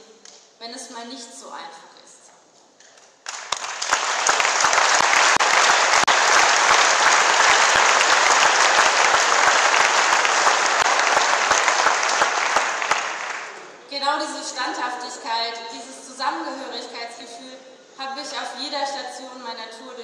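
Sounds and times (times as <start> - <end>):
audience applauding: 3.2 - 13.7.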